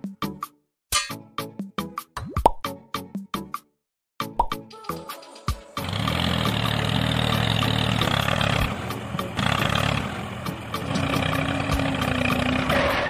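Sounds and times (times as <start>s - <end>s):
tractor engine running: 5.8s - 13.0s.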